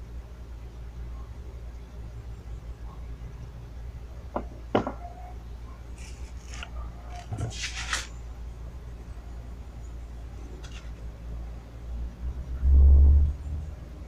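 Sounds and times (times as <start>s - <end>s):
steady low hum: 0.0s - 14.0s
stone scraping on paper-covered bench: 5.9s - 8.2s.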